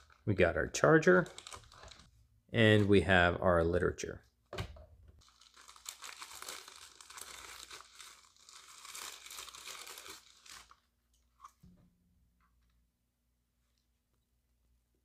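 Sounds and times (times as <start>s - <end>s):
plastic bag crinkling: 1.1s - 2.1s, 5.2s - 10.9s.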